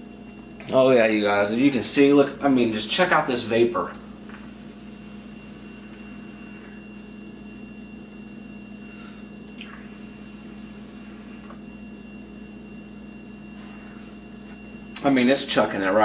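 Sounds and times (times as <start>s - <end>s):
steady electrical hum: 0.0s - 16.0s
faint vaping hiss: 4.3s - 7.0s.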